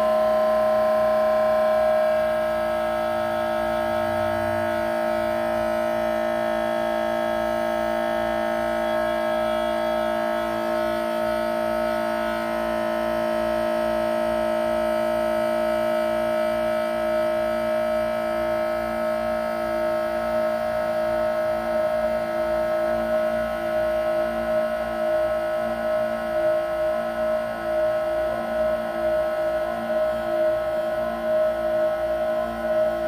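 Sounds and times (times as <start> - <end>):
drone of held tones: 0.0 - 33.0.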